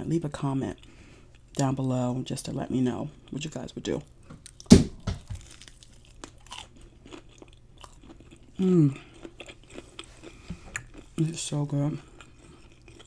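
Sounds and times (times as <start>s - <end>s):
soft crackling chewing: 0.3s - 2.0s, 2.8s - 4.7s, 5.4s - 13.0s
crunchy bite into fried shrimp: 4.4s - 8.4s
person humming: 8.6s - 9.1s.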